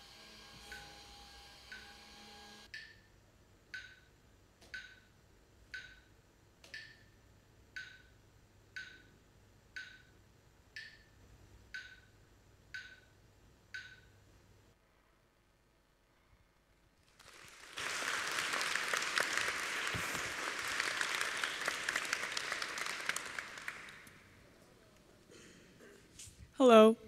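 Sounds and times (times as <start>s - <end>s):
clock ticking: 2.7s - 3.0s, 3.7s - 5.1s, 5.7s - 7.1s, 7.7s - 9.1s, 9.7s - 11.1s, 11.7s - 12.1s, 12.7s - 13.1s, 13.7s - 14.1s.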